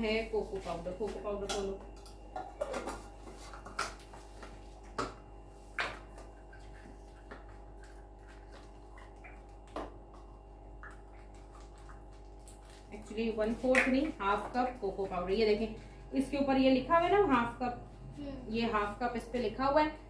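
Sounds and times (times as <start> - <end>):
faint hum: 0.0 - 20.0.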